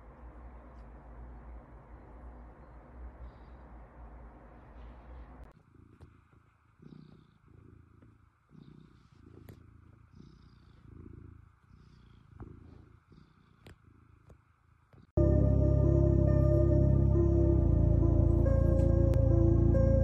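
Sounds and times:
cat purring: 0.1 - 15.2.

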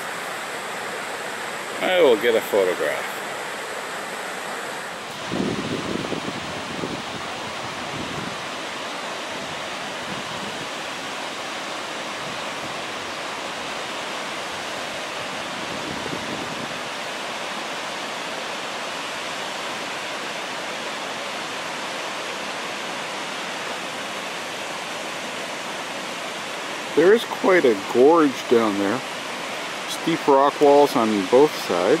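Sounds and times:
waterfall rushing: 0.0 - 32.0.

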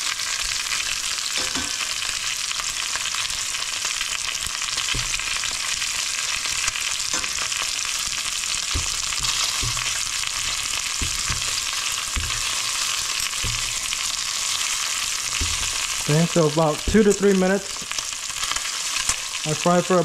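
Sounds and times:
oil sizzling in a pan: 0.0 - 20.0
spatula scraping a pan: 4.8 - 17.2, 17.8 - 19.4.

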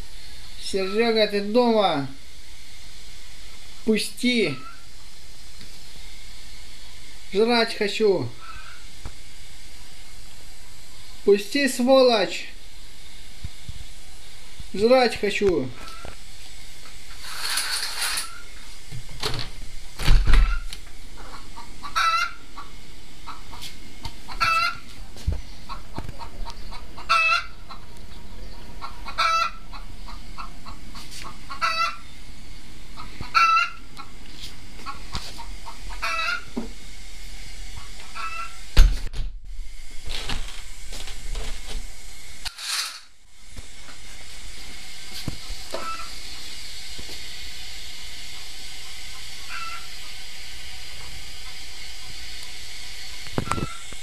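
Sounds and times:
clucking call: 28.8 - 30.8, 31.5 - 32.0, 33.0 - 33.8, 35.6 - 36.4.

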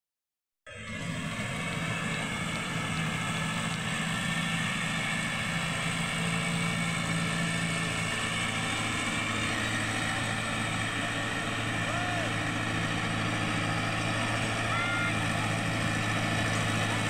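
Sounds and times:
tractor diesel engine under load: 0.7 - 17.0.

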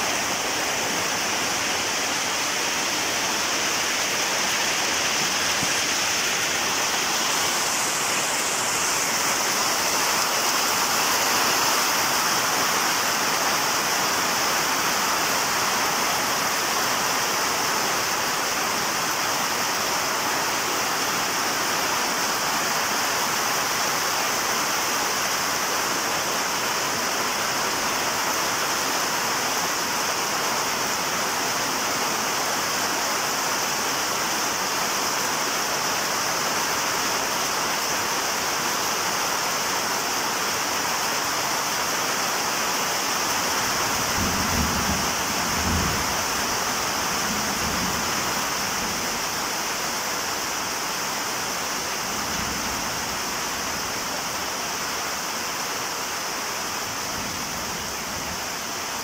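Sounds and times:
rain falling on a roof: 0.0 - 59.0.

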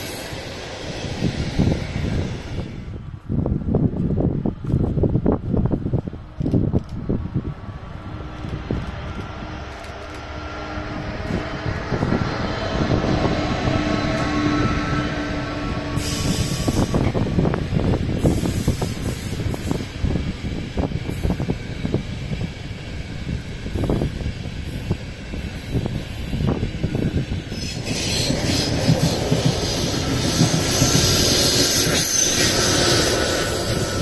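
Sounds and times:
train rumble: 0.0 - 34.0
wheels rattling on rails: 0.0 - 34.0
electric locomotive tone: 8.0 - 34.0.

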